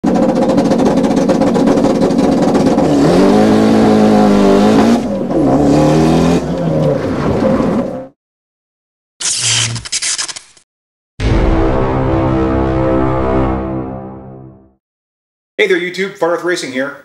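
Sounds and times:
racing car engine revving: 0.1 - 8.0.

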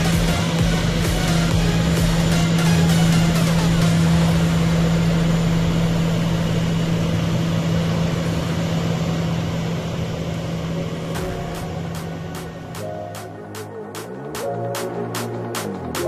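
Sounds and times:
electronic music beat: 0.0 - 5.4, 11.2 - 16.0
jet airliner engines taxiing: 0.0 - 16.0.

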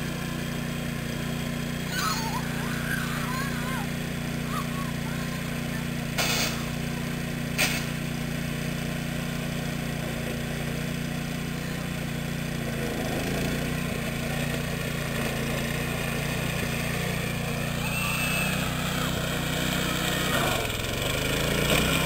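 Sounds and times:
garden tractor engine running: 0.0 - 22.0
short loud noises: 4.5 - 7.0.

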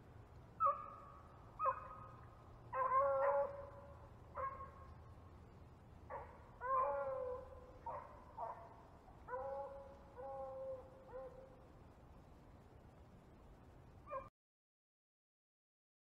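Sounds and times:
beagles baying: 0.6 - 4.9, 6.1 - 11.6.

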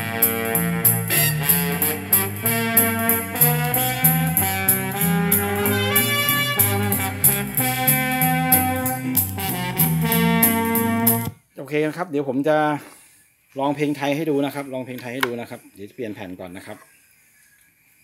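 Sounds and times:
band music from record: 0.0 - 11.3
moving bass line: 0.0 - 11.3.

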